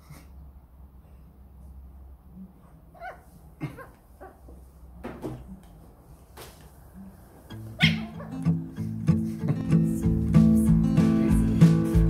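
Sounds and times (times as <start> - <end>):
puppy whimpering: 3.0 - 4.4, 7.8 - 8.4.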